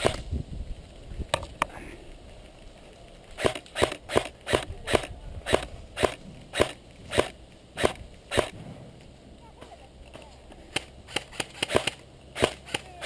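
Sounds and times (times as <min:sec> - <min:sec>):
airsoft rifle shots: 0:00.0 - 0:00.2, 0:03.4 - 0:08.9, 0:10.7 - 0:13.0.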